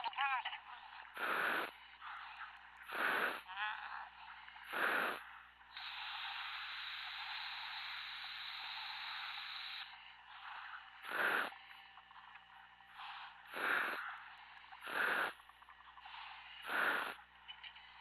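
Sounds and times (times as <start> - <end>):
air rushing through breathing gear: 1.1 - 3.5, 4.6 - 11.6, 12.9 - 15.4, 16.0 - 17.3
steady hiss: 1.2 - 2.2, 2.8 - 3.5, 4.6 - 11.6, 13.0 - 15.4, 16.0 - 17.3.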